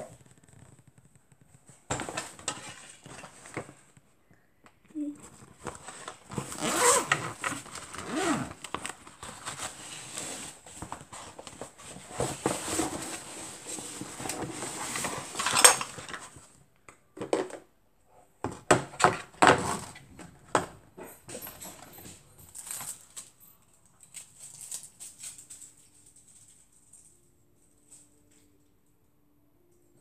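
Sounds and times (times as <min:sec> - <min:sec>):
backpack rustling and clattering: 0:01.6 - 0:04.0, 0:05.3 - 0:16.4.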